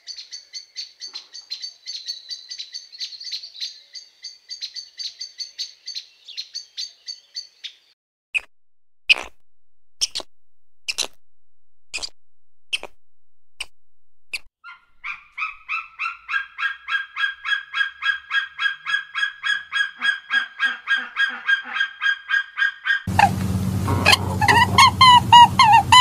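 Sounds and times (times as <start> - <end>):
bird giving sharp calls: 14.6 - 26.0
other bird calls: 14.6 - 26.0.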